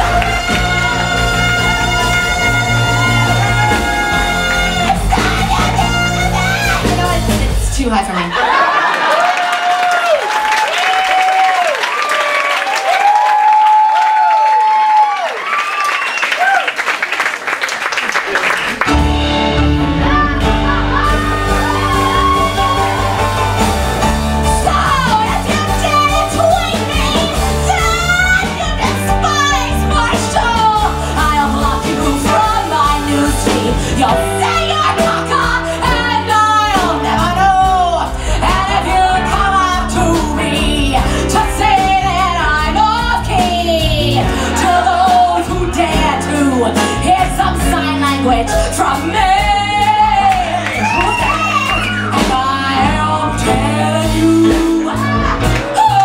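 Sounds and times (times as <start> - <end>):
live band playing: 0.0 - 8.5, 18.2 - 56.0
woman singing into microphone: 24.4 - 56.0.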